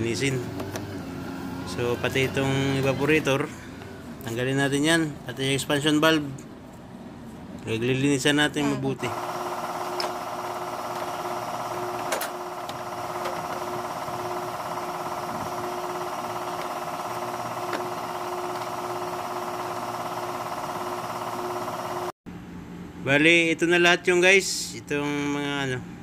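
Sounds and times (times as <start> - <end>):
machine drone: 9.0 - 22.2.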